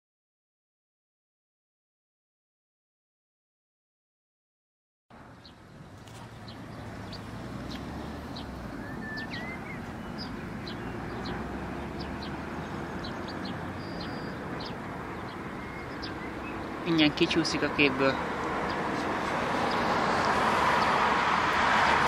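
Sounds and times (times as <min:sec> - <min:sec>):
small birds chirping: 0:05.2 - 0:21.6.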